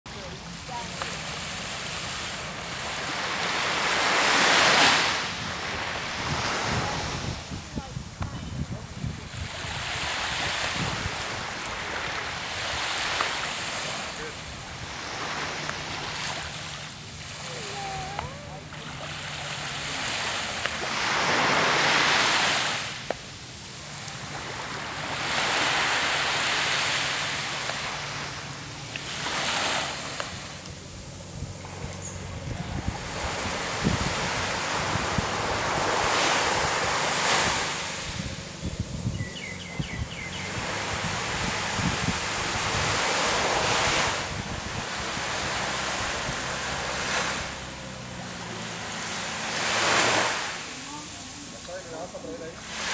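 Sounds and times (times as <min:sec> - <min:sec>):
wave washing in: 0:00.1 - 0:39.1, 0:40.0 - 0:52.9
wind buffeting microphone: 0:02.3 - 0:18.8, 0:30.3 - 0:51.4.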